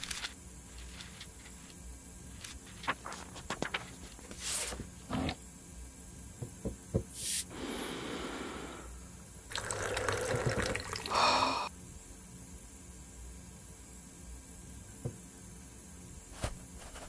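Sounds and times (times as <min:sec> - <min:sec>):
coffee maker hissing and gurgling: 0:07.2 - 0:11.7
coffee maker sputter: 0:09.5 - 0:11.3.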